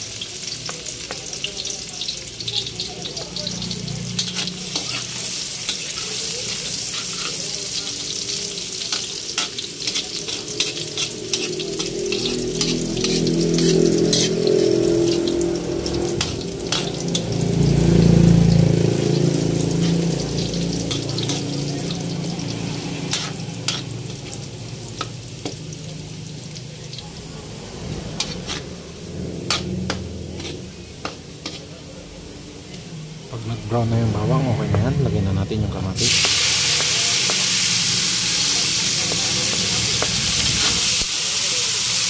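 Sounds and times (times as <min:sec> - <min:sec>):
garlic sizzling in hot oil: 0:00.0 - 0:34.2, 0:35.7 - 0:42.0
metal spatula scraping pan: 0:04.0 - 0:17.3, 0:19.6 - 0:21.5, 0:22.3 - 0:24.3, 0:27.6 - 0:31.9
low rumble: 0:27.2 - 0:31.1.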